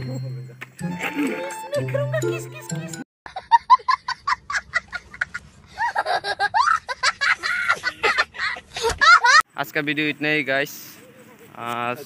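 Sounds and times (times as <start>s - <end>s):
boy laughing: 3.3s - 9.4s.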